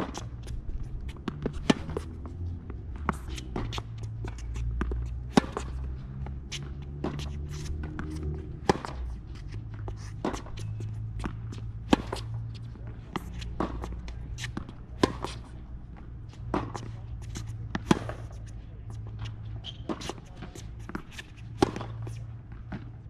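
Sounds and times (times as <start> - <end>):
footsteps on hard court: 0.0 - 23.0
racket hitting tennis ball: 0.0 - 23.0.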